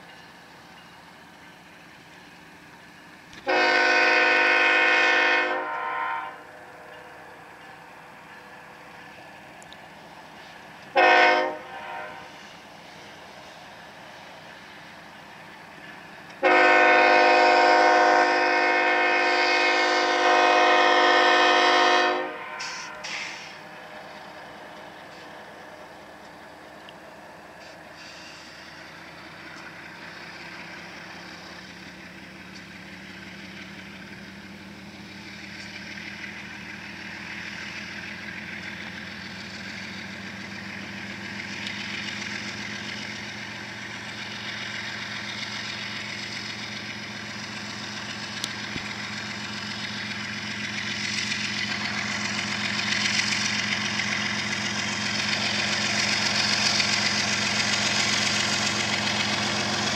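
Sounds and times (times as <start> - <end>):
diesel locomotive engines drone: 0.0 - 59.9
hiss from moving train: 0.0 - 59.9.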